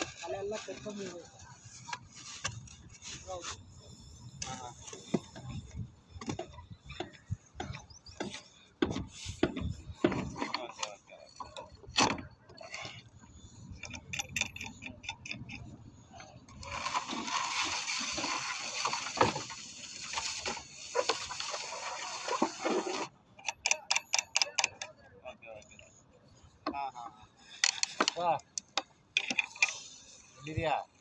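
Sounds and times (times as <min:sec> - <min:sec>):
pipe scraping: 0:12.5 - 0:23.1.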